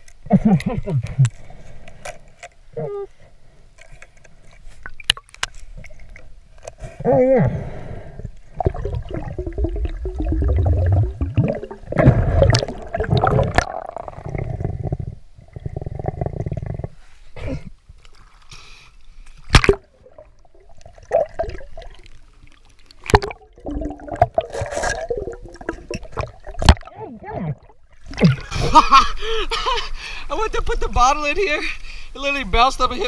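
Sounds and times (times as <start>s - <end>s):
water gurgling and sloshing: 8.0s - 29.0s.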